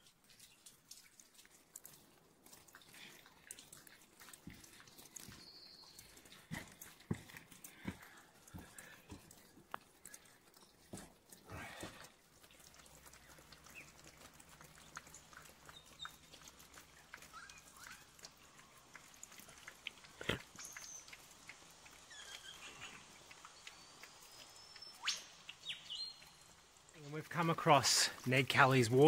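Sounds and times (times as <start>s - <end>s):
light clicks and crackles: 0.0s - 29.0s
bird whistles and chirps: 24.4s - 26.2s.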